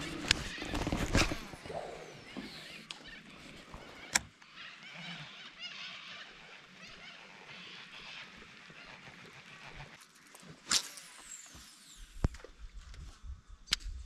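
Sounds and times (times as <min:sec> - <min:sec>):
faint bird calls: 0:00.0 - 0:10.0.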